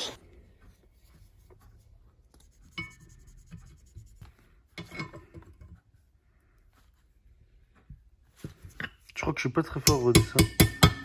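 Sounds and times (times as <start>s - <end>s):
highlighter rubbing on paper: 2.2s - 4.6s.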